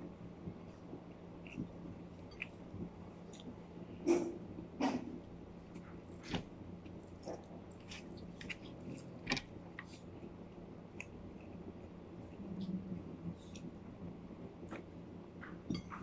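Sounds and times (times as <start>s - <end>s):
person chewing food: 1.1s - 4.2s, 4.8s - 12.4s.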